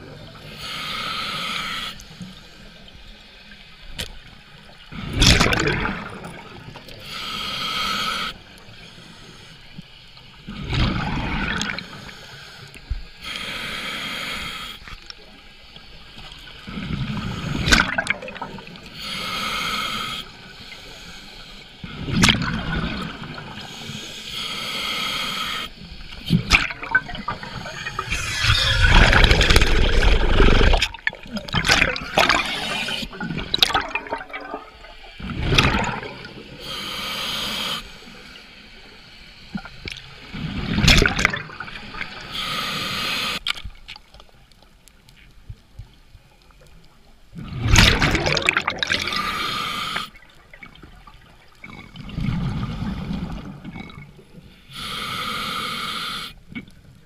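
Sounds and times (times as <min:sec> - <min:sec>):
regulator hissing inhale: 0:00.4 - 0:03.0, 0:06.9 - 0:10.4, 0:11.8 - 0:15.0, 0:15.9 - 0:17.8, 0:18.7 - 0:21.9, 0:23.6 - 0:26.4, 0:36.3 - 0:39.8, 0:42.0 - 0:43.5, 0:49.0 - 0:50.3, 0:54.4 - 0:56.4
exhaust bubbles gushing: 0:26.5 - 0:36.3, 0:47.6 - 0:49.1.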